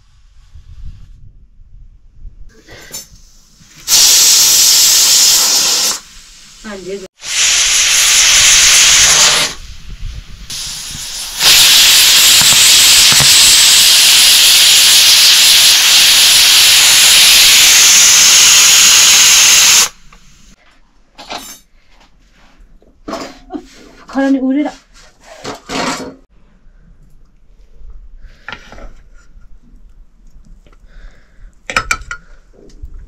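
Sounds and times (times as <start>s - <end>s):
cooking steam hissing: 2.6s - 20.6s.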